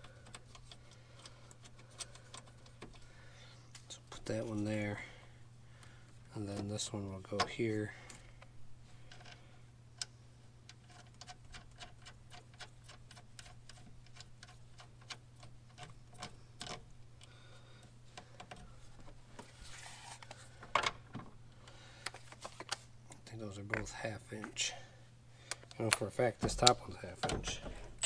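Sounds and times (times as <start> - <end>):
clicks of handling wires: 0.0 - 3.1, 5.8 - 24.6, 25.5 - 28.0
steady low hum: 0.0 - 28.0.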